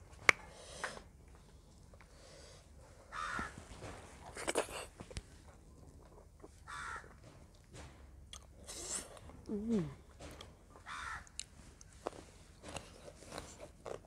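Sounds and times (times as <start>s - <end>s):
crow cawing: 3.1s - 3.5s, 6.7s - 7.1s, 10.8s - 11.3s.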